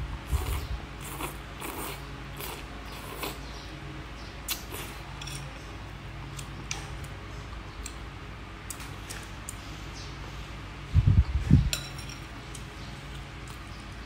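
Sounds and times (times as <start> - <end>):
steady low hum: 0.0 - 14.0
noodles slurped and chewed: 0.3 - 3.4.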